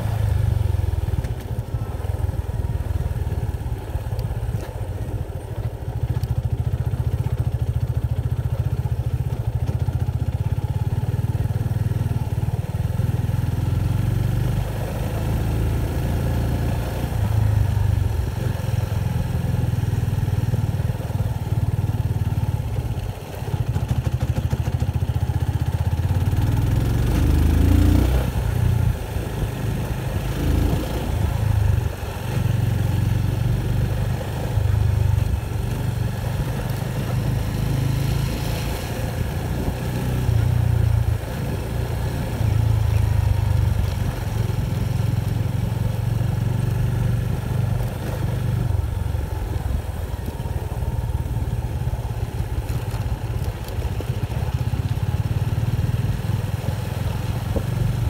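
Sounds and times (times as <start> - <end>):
motorcycle engine rumbling: 0.0 - 58.0
motorcycle engine revving: 23.5 - 58.0.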